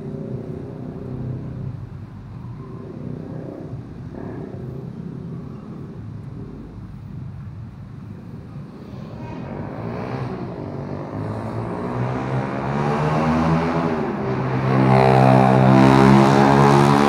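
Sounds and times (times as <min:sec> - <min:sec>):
vehicle engine droning hum: 0:00.0 - 0:17.0.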